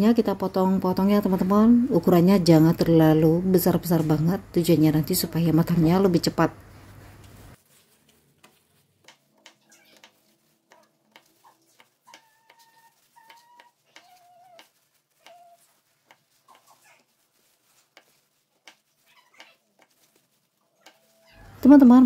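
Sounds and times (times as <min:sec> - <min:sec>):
knife cutting on plastic board: 0:08.0 - 0:21.1
faint animal calls: 0:09.5 - 0:17.2.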